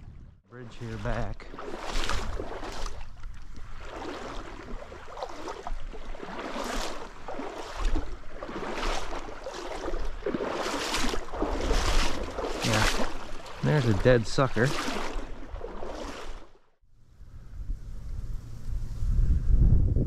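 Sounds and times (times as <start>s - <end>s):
wind rumbling on microphone: 0.0s - 9.2s, 17.0s - 20.0s
stream water rushing: 3.8s - 16.4s.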